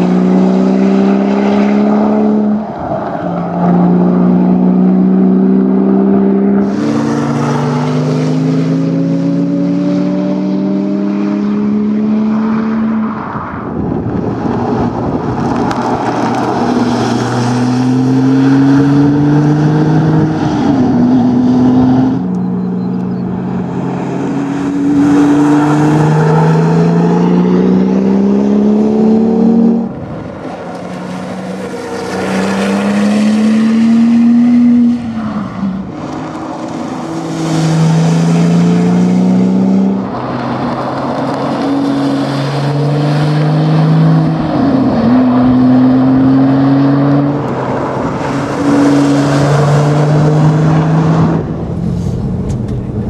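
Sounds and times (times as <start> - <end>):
car engine accelerating hard: 0.0 - 53.0.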